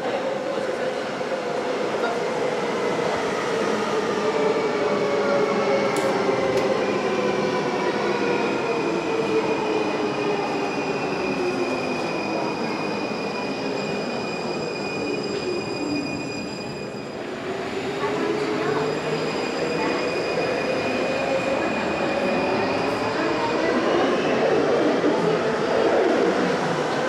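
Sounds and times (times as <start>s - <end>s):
train wheel squeal: 10.4s - 23.0s.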